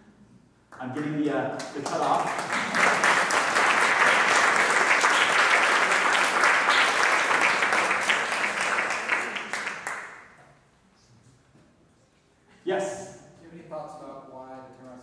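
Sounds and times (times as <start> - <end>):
audience applauding: 1.6 - 10.4.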